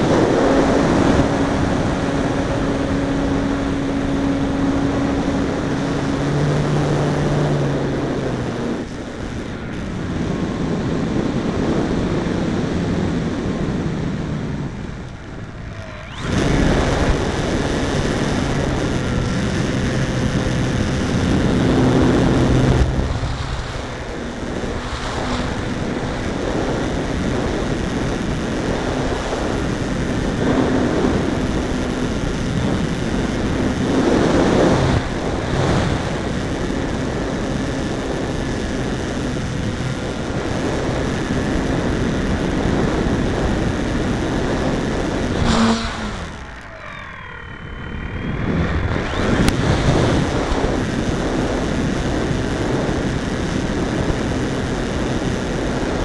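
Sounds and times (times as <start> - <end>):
electric motor and propeller: 0.0 - 56.0
air rushing past: 21.4 - 26.3, 45.3 - 49.8.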